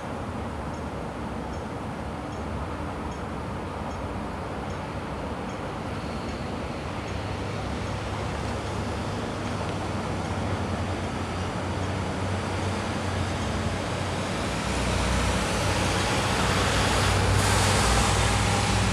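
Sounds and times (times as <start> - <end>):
rush of tyres and engines: 0.0 - 18.9
low engine hum: 6.6 - 18.9.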